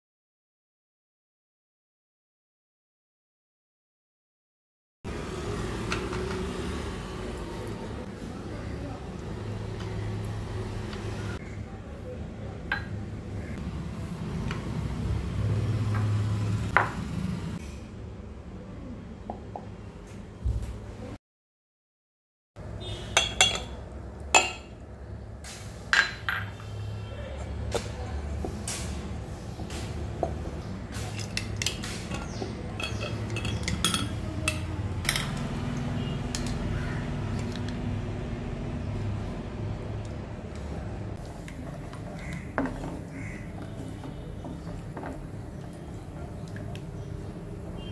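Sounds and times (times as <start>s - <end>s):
dishes knocking and clinking: 23.2s - 23.8s, 26.0s - 26.6s
metal utensils clinking: 31.0s - 35.5s.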